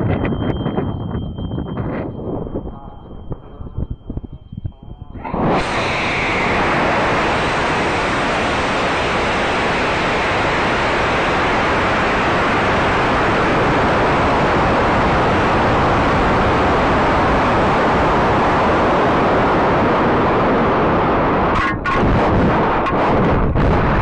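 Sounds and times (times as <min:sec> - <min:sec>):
air rushing past: 0:05.2 - 0:10.6
rocket motor firing: 0:05.2 - 0:17.6.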